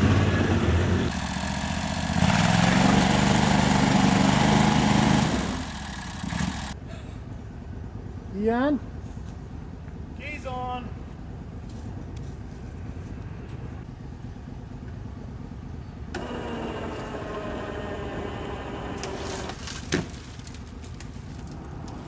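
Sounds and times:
electric winch motor whining: 0:01.0 - 0:06.8, 0:16.1 - 0:19.6.

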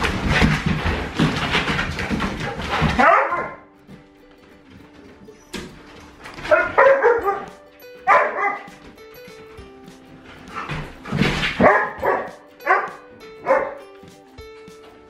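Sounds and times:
dogs yipping and whining: 0:05.2 - 0:08.8.

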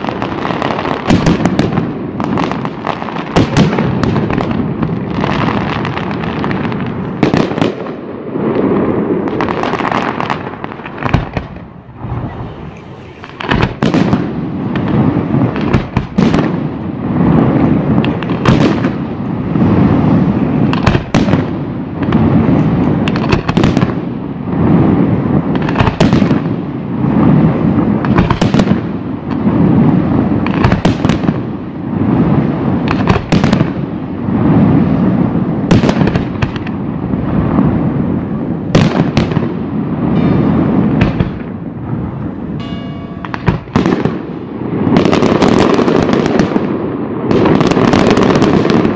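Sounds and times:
firework shells bursting: 0:09.4 - 0:16.4, 0:40.1 - 0:46.5.

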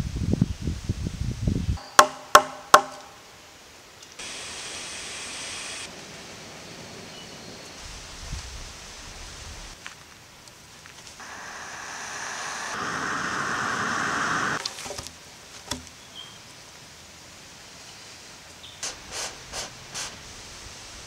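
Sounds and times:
air blown through a tube: 0:11.2 - 0:14.6.

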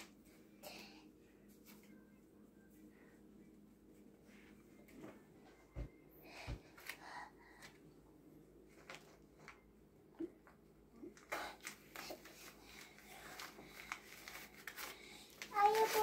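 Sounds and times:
paper banknotes rustling: 0:11.8 - 0:16.0.

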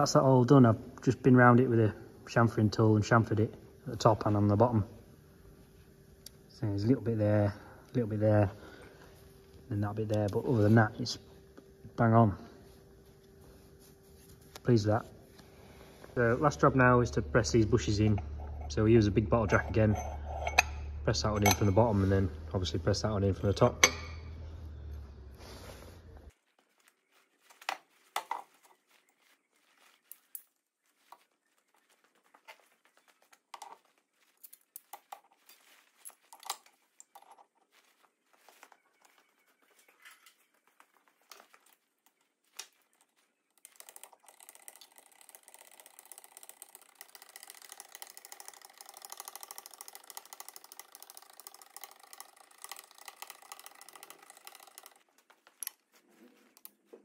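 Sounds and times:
metal clinks and knocks: 0:17.9 - 0:21.9, 0:23.8 - 0:24.4
jack ticking and rattling: 0:43.6 - 0:55.8.

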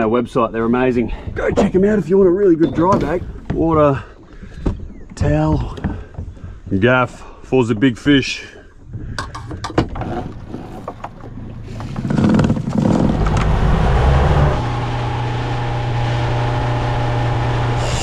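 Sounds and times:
boat motor running: 0:10.0 - 0:18.0.

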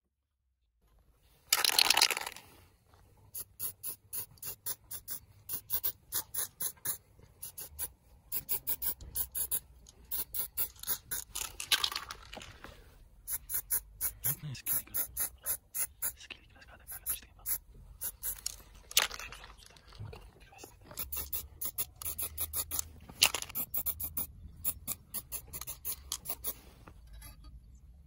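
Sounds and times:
spray paint can hissing: 0:03.3 - 0:11.5, 0:13.3 - 0:16.2, 0:17.0 - 0:18.6, 0:21.0 - 0:26.6.

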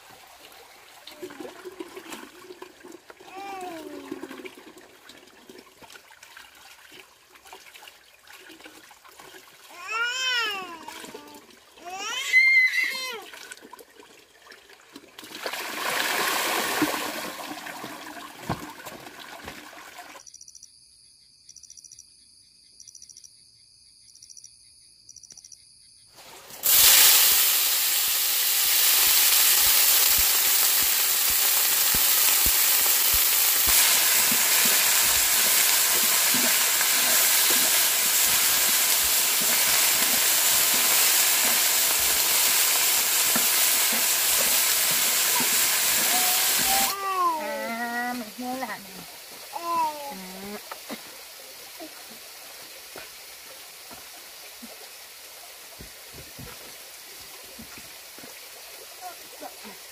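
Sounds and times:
loud hissing sizzle: 0:26.2 - 0:53.4
low crackles and pops: 0:26.6 - 0:46.2.

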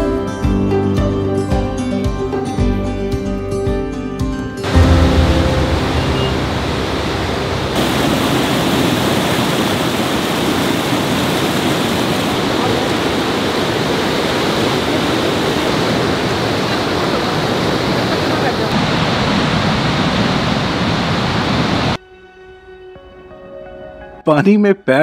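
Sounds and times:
river rushing over rocks: 0:04.7 - 0:22.0.

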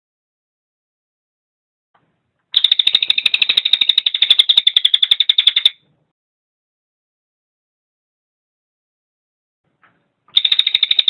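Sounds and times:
jay rattling call: 0:02.6 - 0:05.8, 0:10.3 - 0:11.0.

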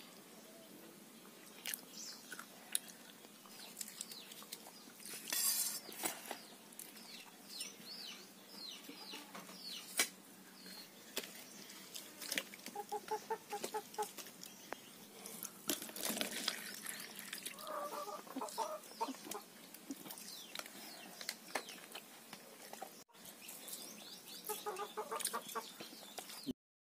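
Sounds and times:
chickens clucking: 0:06.3 - 0:10.1, 0:11.8 - 0:15.6, 0:16.9 - 0:23.4, 0:24.3 - 0:26.5
water poured into plastic cup: 0:15.7 - 0:17.8.

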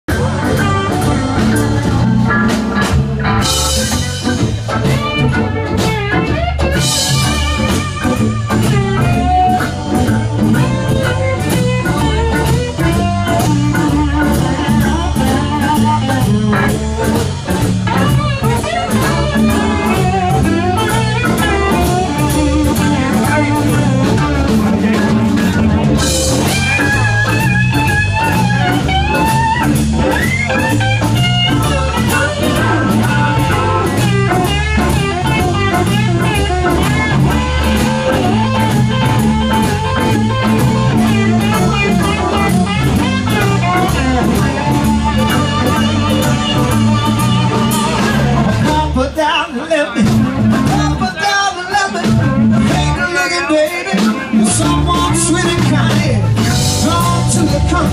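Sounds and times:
blues-rock band playing: 0:00.0 - 0:57.9
lead guitar with bent notes: 0:00.1 - 0:57.9.

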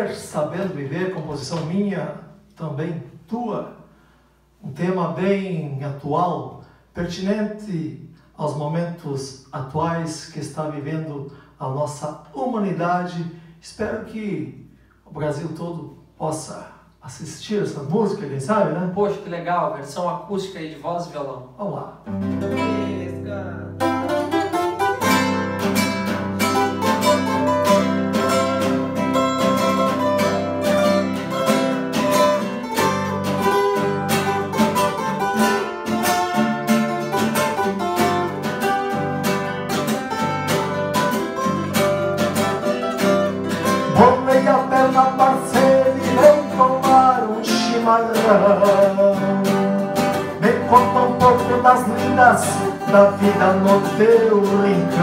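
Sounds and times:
acoustic guitars plucked and strummed: 0:22.0 - 0:55.0.

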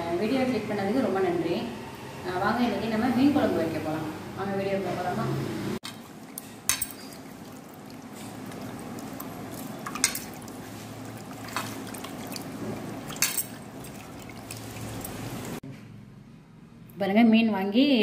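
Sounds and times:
sharp water splashes: 0:05.8 - 0:15.6
hands swishing fish in water: 0:07.2 - 0:15.6.

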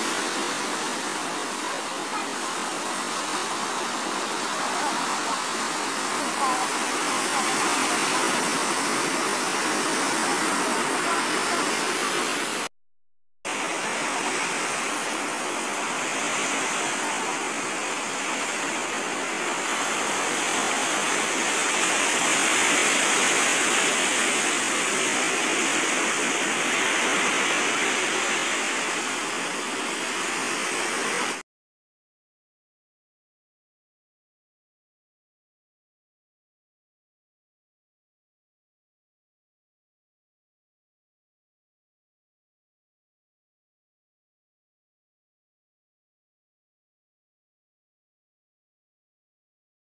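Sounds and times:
sea waves breaking on beach: 0:00.0 - 0:12.7, 0:13.5 - 0:31.4.

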